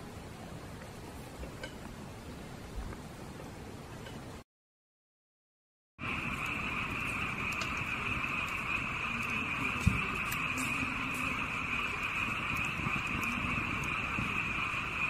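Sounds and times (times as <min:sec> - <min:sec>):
night animals chorus: 0:06.0 - 0:15.0
wood fire crackling: 0:06.0 - 0:15.0.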